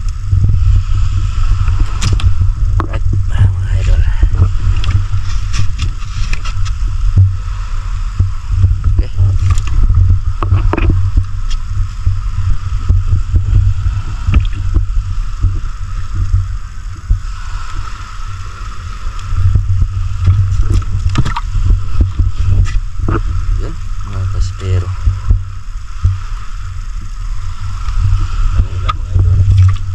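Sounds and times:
boat engine rumble: 0.0 - 29.9
knocks and wet slaps of fish: 1.6 - 3.0, 9.4 - 11.6, 14.2 - 15.5, 20.2 - 23.2, 28.8 - 29.9.

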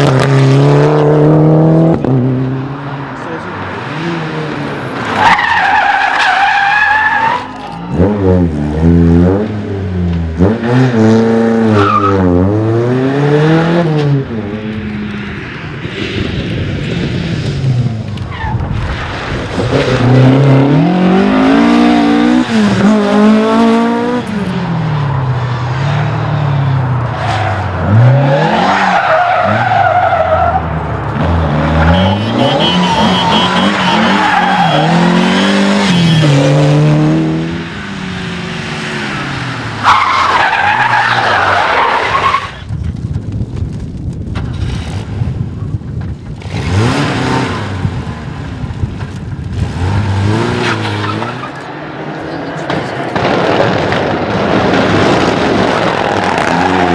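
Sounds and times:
rally car engines revving: 0.0 - 42.7, 46.0 - 56.9
tyres skidding on tarmac: 2.2 - 8.9, 9.5 - 36.6, 37.2 - 43.1, 46.3 - 56.9.

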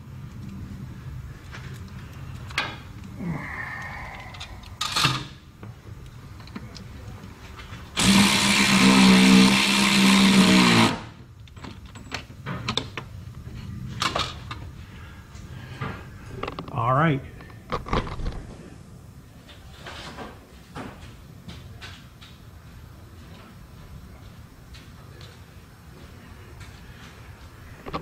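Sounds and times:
power driver driving screw: 8.0 - 11.0.

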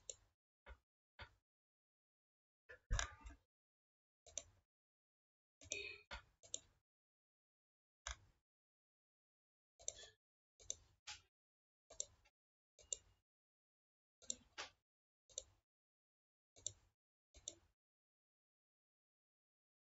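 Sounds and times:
computer mouse clicking: 9.8 - 11.2, 16.6 - 16.8, 17.4 - 17.7.

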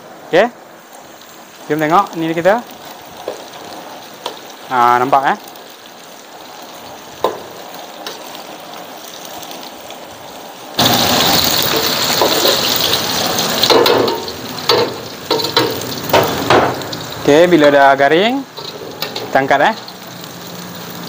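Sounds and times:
noodles sizzling in hot oil: 0.0 - 21.0
metal spatula scraping a wok: 18.5 - 20.1.

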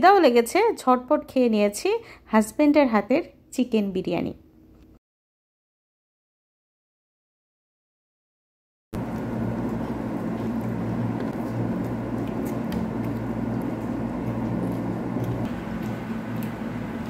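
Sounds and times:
appliance humming: 9.0 - 17.0.

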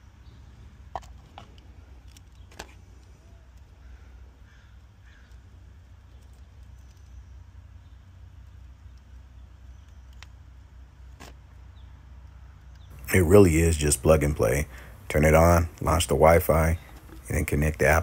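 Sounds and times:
low steady hum: 0.0 - 18.0
faint crow caws: 3.8 - 5.5
small clicks and knocks of cable: 9.8 - 10.4.

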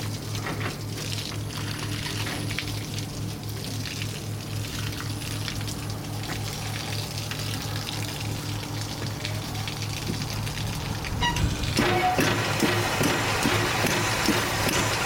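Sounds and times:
low pulsing hum: 0.0 - 15.0
steam engine hissing: 11.8 - 15.0.

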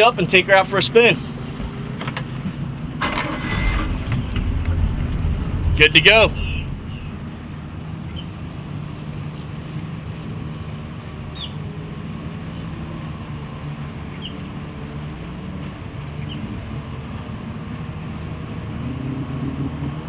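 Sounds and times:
boat engine idling: 0.6 - 7.6.

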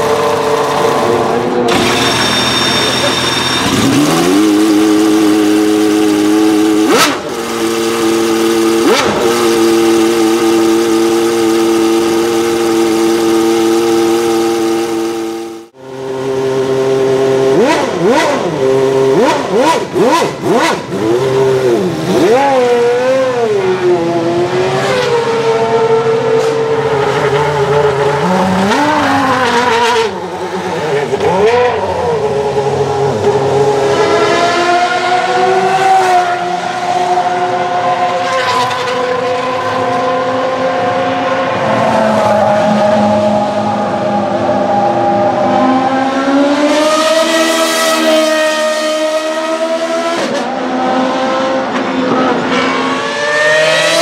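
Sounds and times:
racing engine revs blipped: 0.0 - 26.2.

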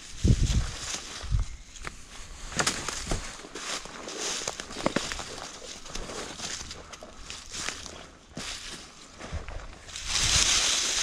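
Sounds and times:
branches rustling and crackling: 0.0 - 11.0
footsteps: 0.3 - 11.0
twigs snapping: 0.8 - 3.5, 4.2 - 7.9.

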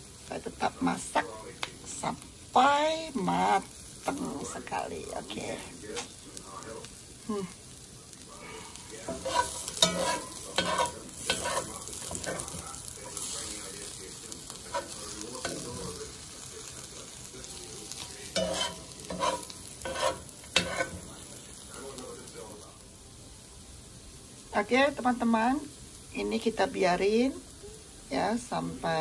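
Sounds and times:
meat sizzling in a frying pan: 0.0 - 29.0
utensil stirring and scraping pan: 8.4 - 21.8.

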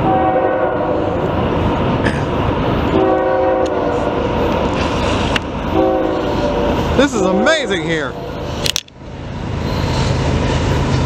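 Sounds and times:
train horn blasts: 0.0 - 1.2, 2.9 - 4.3, 5.7 - 8.4
train rumble: 0.0 - 11.0.

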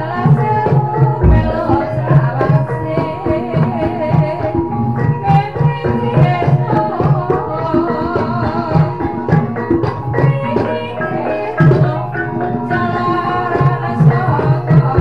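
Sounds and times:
hand drum beating: 0.5 - 2.6, 13.8 - 15.0
ringing metallophone tones: 1.2 - 2.3
wavering melody line: 1.2 - 2.3.

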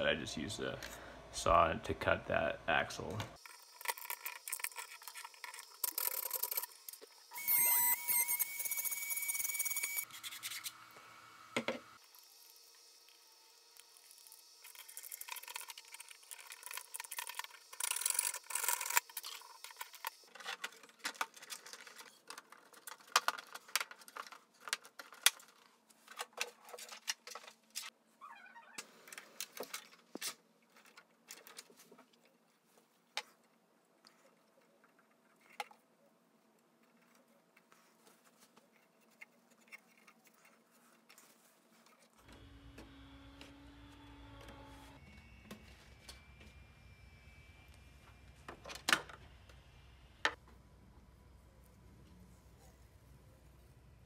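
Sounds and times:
scratchy rustling and scraping: 36.8 - 42.2.

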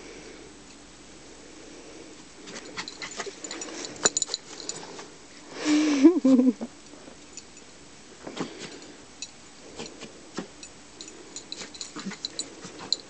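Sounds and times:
dogs crunching in snow: 2.4 - 5.2.

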